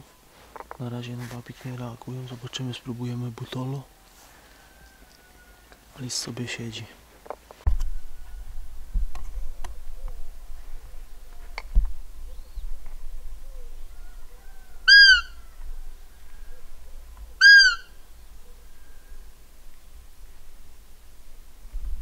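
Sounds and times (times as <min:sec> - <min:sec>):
deer call squeaks: 0:14.8 - 0:15.4, 0:17.4 - 0:18.0.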